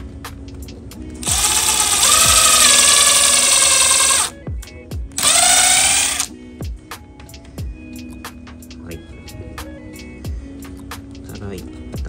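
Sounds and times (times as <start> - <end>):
background music: 0.0 - 12.0
power drill whining: 1.2 - 4.3, 5.2 - 6.3.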